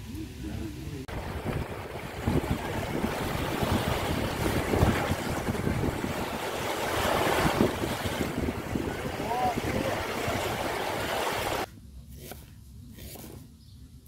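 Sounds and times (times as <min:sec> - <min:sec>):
small waves breaking on shore: 0:01.1 - 0:11.7
wind buffeting microphone: 0:01.1 - 0:11.7.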